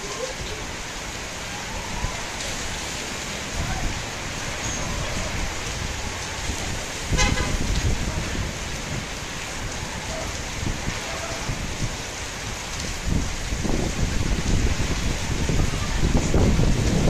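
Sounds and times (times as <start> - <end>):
steady rain falling: 0.0 - 17.0
wind buffeting microphone: 3.4 - 17.0
vehicle horn toot: 7.1 - 7.7.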